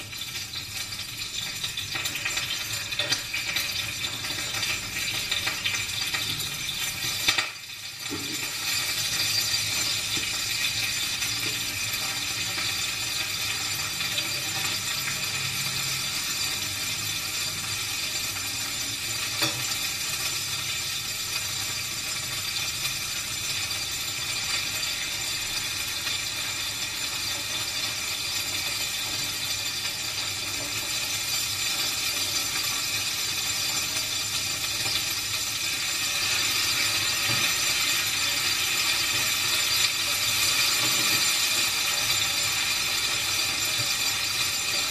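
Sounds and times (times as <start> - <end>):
food sizzling in hot oil: 0.0 - 44.9.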